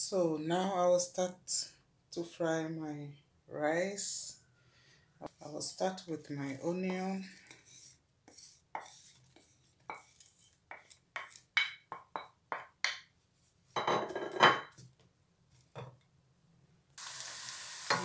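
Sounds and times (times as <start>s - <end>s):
spatula scraping pan: 5.6s - 11.5s
wooden spatula knocking bowl: 10.7s - 13.1s
onion sizzling in oil: 17.0s - 18.0s.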